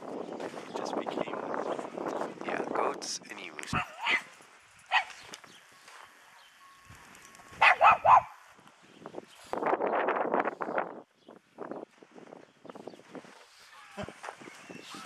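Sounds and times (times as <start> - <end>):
small dog barking: 3.7 - 4.3, 4.9 - 5.2, 7.6 - 8.4.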